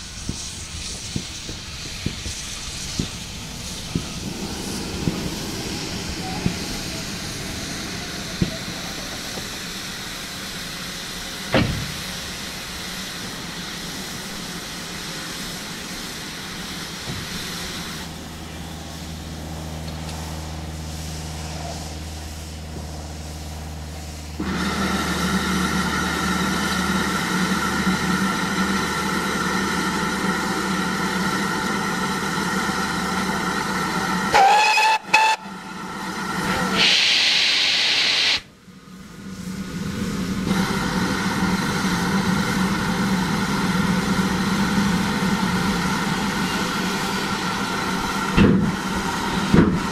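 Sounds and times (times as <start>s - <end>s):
sharp hiss of steam: 0.0s - 19.4s, 20.1s - 49.9s
steady rush of steam: 0.0s - 49.9s
steam engines hissing steam: 0.0s - 49.9s
steam whistle: 34.3s - 35.7s.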